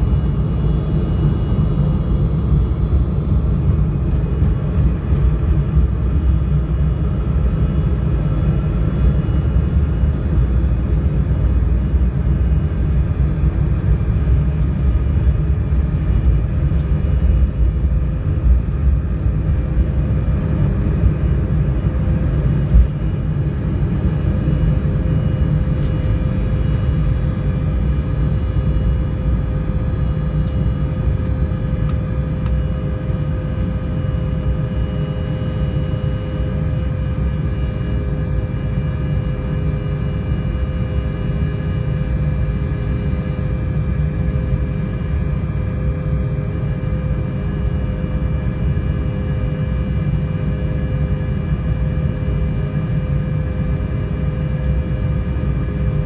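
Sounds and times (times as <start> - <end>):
faint engine whine: 0.0 - 56.0
jet engines and wheels rumbling: 0.0 - 56.0
steady hum tone: 0.0 - 56.0.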